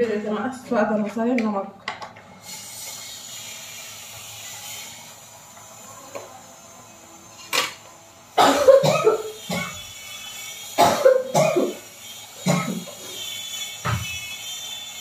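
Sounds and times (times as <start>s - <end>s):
woman coughing: 8.4s - 9.8s, 10.8s - 11.8s, 12.4s - 12.9s.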